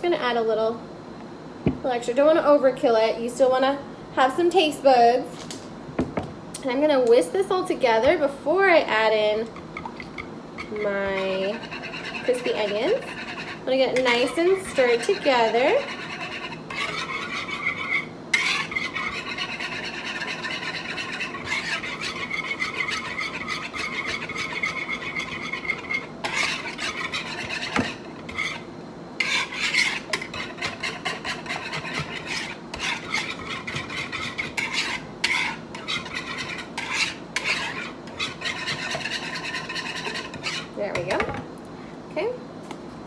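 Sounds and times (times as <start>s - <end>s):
metal whisk scraping a bowl: 9.8s - 41.0s.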